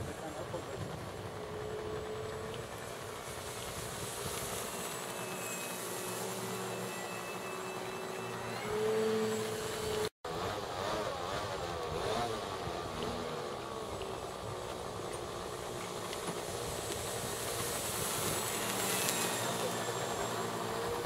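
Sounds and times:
electric model plane motor whine: 1.5s - 10.1s, 16.4s - 21.0s.

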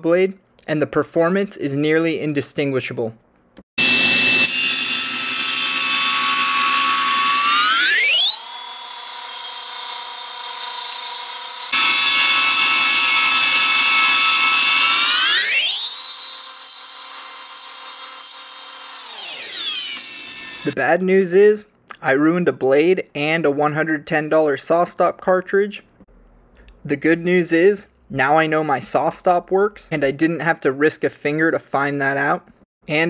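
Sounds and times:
table saw cutting wood: 3.8s - 20.8s.

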